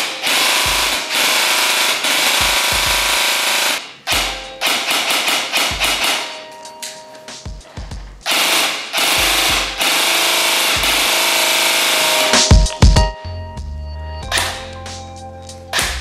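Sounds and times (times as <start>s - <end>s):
rapid machine-gun-like rattles: 0.0s - 6.4s, 8.2s - 12.5s
electronic music: 0.0s - 16.0s.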